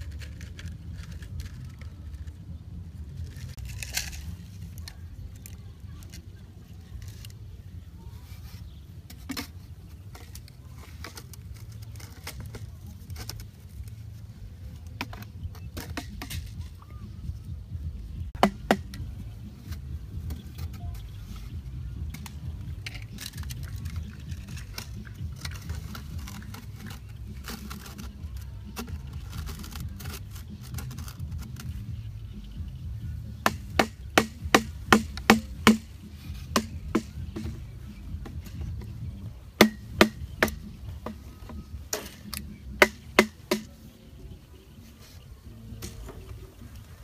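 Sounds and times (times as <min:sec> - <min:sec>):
plastic pipe pieces knocking: 0:09.1 - 0:14.0, 0:14.8 - 0:16.7, 0:18.4 - 0:21.5, 0:22.1 - 0:31.8, 0:33.4 - 0:37.6, 0:39.6 - 0:43.8.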